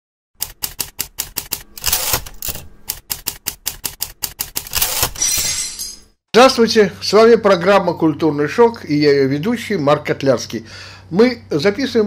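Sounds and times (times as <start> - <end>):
typewriter keys clacking: 0.4 - 5.2
typewriter carriage sliding: 0.8 - 3.0, 3.8 - 5.2.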